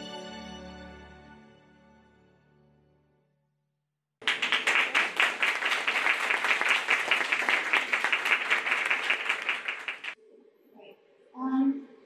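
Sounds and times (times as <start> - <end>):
audience applauding: 4.2 - 10.2.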